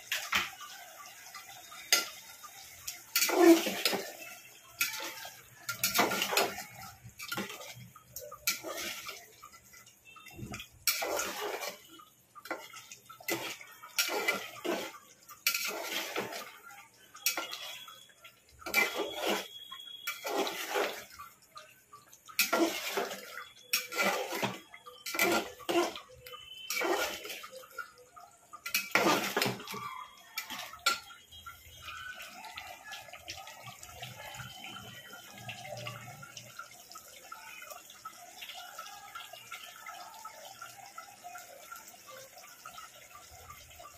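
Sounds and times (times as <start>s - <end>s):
metal spoon scraping a pot: 2.9s - 18.0s, 18.6s - 21.4s, 22.2s - 29.8s.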